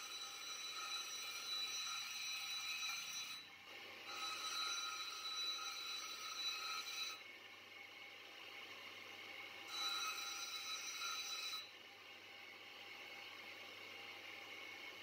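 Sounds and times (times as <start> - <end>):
blade grinding on grinding wheel: 0.0 - 7.2, 9.6 - 11.7.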